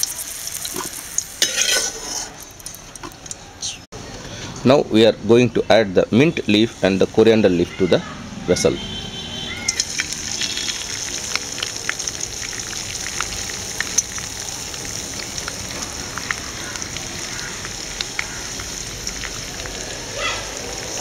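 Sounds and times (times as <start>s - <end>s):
leaves sizzling in hot oil: 0.0s - 3.4s, 9.6s - 21.0s.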